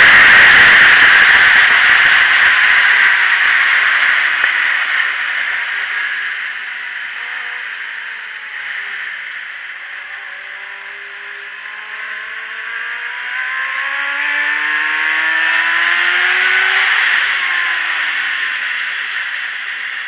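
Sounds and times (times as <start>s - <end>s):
wind rush: 0.0s - 5.3s
motorcycle engine accelerating: 0.0s - 20.0s.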